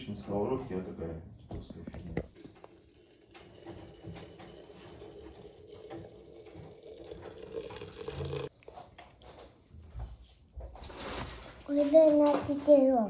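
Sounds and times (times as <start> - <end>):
water pouring into teapot: 2.4 - 8.5.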